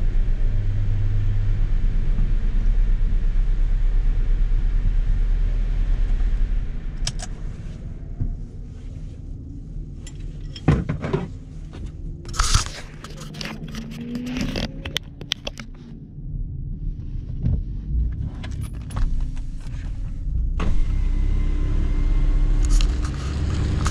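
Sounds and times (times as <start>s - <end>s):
car engine idling: 0.0s - 23.9s
hand handling camera: 12.3s - 15.7s.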